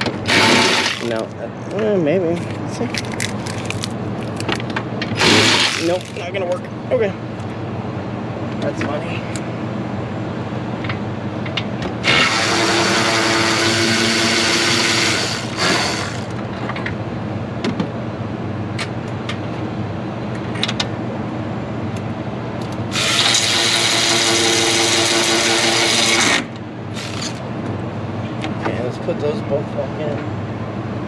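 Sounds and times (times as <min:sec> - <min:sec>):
power tool whining: 0:00.0 - 0:01.2, 0:05.2 - 0:06.2, 0:12.0 - 0:16.4, 0:22.9 - 0:27.4.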